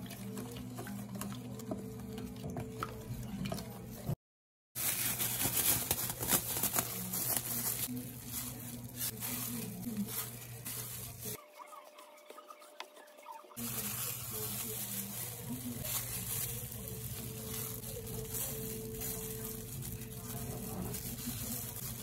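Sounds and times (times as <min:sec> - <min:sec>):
wooden spoon stirring marinade: 0:00.0 - 0:04.0, 0:07.8 - 0:22.0
plastic glove crinkling: 0:04.8 - 0:12.0, 0:13.6 - 0:22.0.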